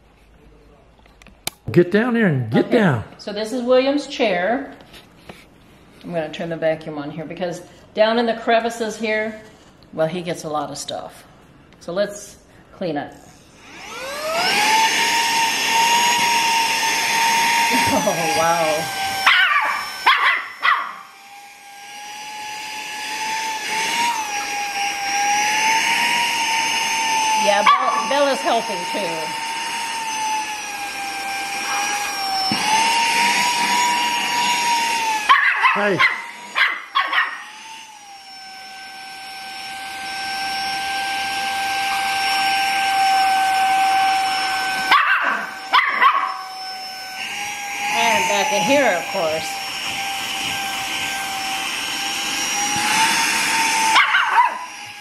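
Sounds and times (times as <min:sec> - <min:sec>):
handheld vacuum cleaner whine: 0:13.2 - 0:55.0
dog barking: 0:19.3 - 0:21.0, 0:27.6 - 0:28.0, 0:35.3 - 0:37.4, 0:44.9 - 0:46.4, 0:54.0 - 0:54.6.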